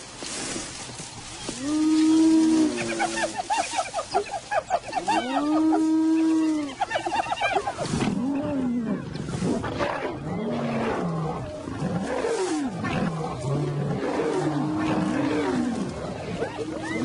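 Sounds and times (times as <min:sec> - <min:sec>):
rough growling calls: 0:01.4 - 0:17.0
hyena calling: 0:01.6 - 0:09.0.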